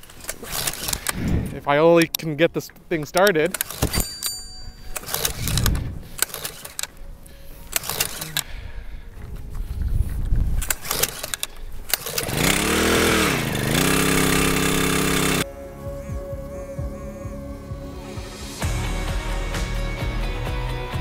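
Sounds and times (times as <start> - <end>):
small engine pull-starting and revving: 0.0 - 1.2, 5.0 - 6.9, 7.7 - 8.5, 10.6 - 15.5.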